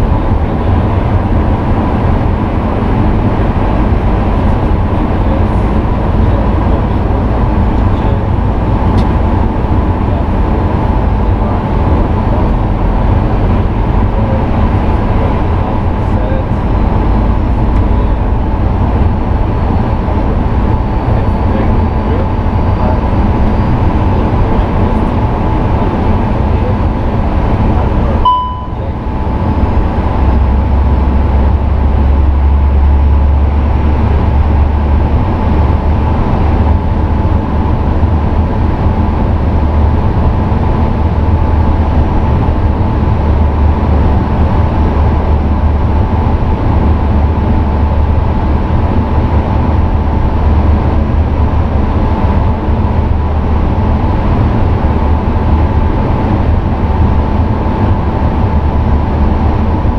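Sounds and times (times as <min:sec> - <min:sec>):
deep low rumble: 0:00.0 - 0:59.9
hum of airflow and engines: 0:00.0 - 0:59.9
faint steady tones: 0:28.1 - 0:29.6
short tone: 0:28.2 - 0:29.1.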